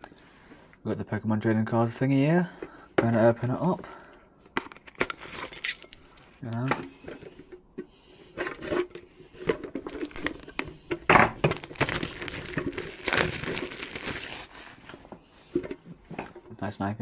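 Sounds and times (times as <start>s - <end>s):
plastic wrap crinkling and tearing: 9.3s - 10.4s, 11.4s - 15.0s.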